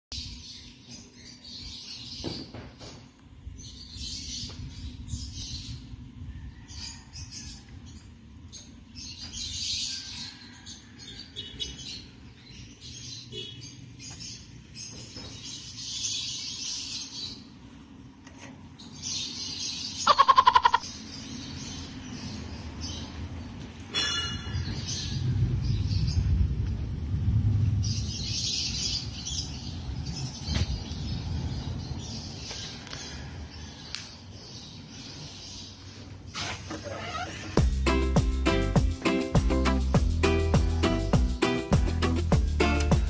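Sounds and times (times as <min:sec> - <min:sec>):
birds chirping: 0:00.1 - 0:26.5, 0:27.7 - 0:43.0
steady low rumble: 0:24.6 - 0:33.8.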